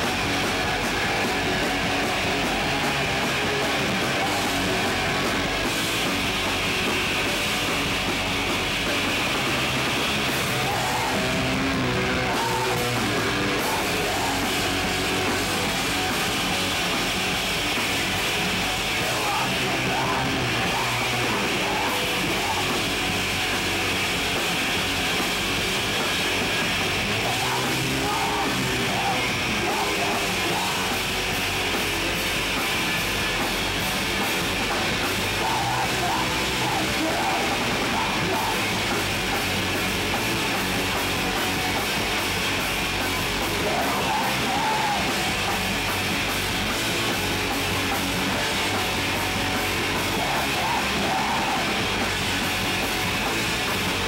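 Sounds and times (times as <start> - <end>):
distorted guitar: 0.0 - 54.0
drums: 0.0 - 54.0
person yelling vocals: 10.5 - 14.7, 27.2 - 31.0, 35.4 - 38.7, 43.5 - 45.3, 50.0 - 51.8.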